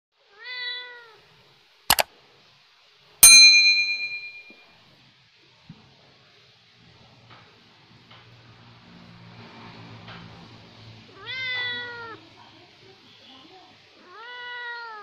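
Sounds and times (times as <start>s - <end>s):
notification bell ding: 3.2s - 4.5s.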